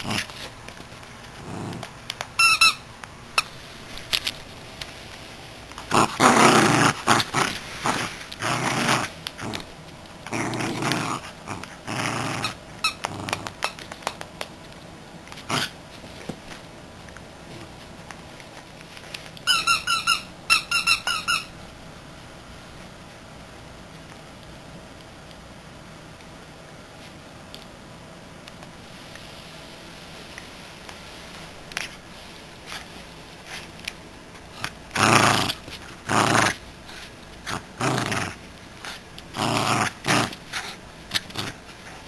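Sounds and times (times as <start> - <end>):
dog chewing toy: 0.0 - 4.4, 5.7 - 14.2, 34.5 - 42.0
squeaky toy squeaking: 2.4 - 2.8, 19.4 - 21.5.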